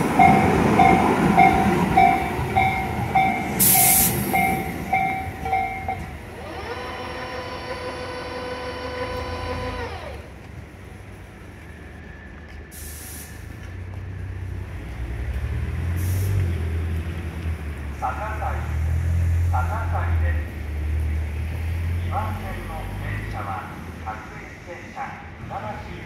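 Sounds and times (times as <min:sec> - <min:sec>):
repeating ringing tone: 0:00.2 - 0:06.1
train brakes squealing: 0:00.2 - 0:08.0
brake air hissing: 0:03.4 - 0:04.8, 0:12.7 - 0:13.7, 0:15.9 - 0:16.5.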